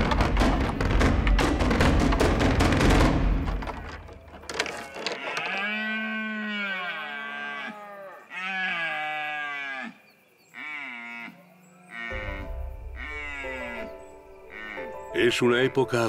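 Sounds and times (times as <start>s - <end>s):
antlers clacking: 0.0s - 5.7s
deer bellowing: 4.8s - 15.0s.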